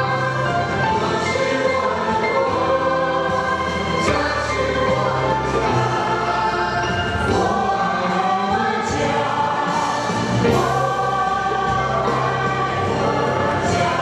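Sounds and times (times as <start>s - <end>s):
young men singing into microphones: 0.0s - 14.0s.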